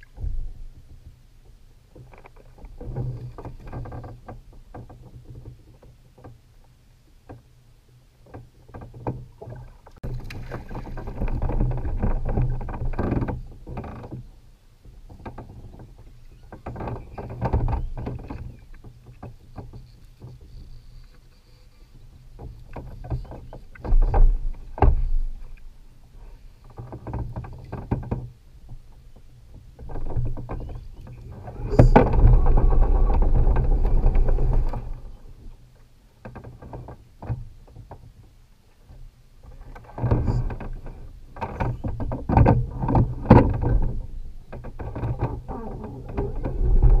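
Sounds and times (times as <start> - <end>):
water splashing: 10.0 - 11.7.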